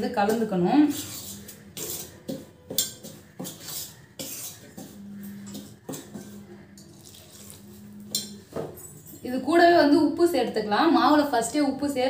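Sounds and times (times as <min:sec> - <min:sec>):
spoon scraping steel pot: 0:00.0 - 0:09.5.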